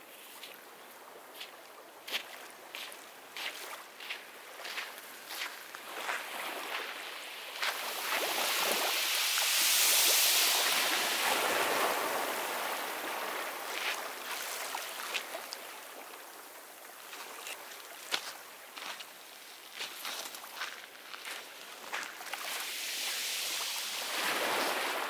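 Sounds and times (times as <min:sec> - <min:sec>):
ocean surf breaking on beach: 0:05.8 - 0:16.4, 0:22.4 - 0:25.0.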